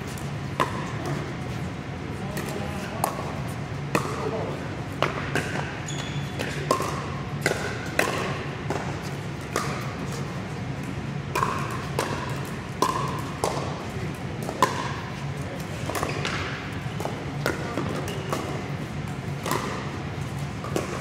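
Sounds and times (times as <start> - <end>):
paddles hitting plastic ball: 6.4 - 21.0.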